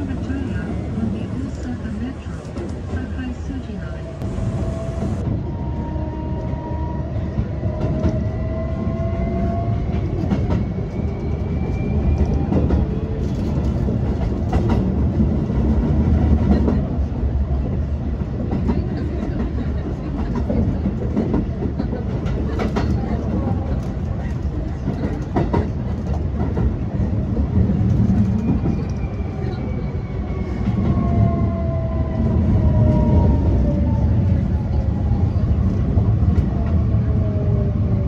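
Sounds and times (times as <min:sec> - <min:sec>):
train wheels rumbling on rails: 0:00.0 - 0:38.0
clacks over rail joints: 0:18.4 - 0:28.9.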